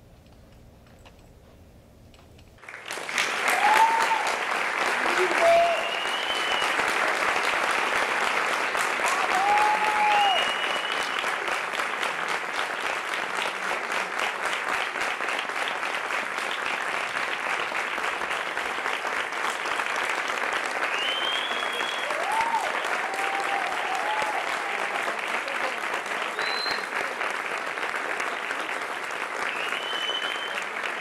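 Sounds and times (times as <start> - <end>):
audience applauding: 2.6 - 31.0
short cheers: 3.4 - 6.9, 9.0 - 11.2, 20.9 - 25.6.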